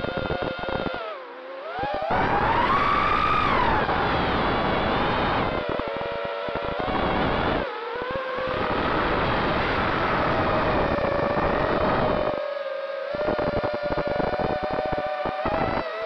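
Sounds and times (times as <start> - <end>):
drone motors whining: 0.0 - 12.4.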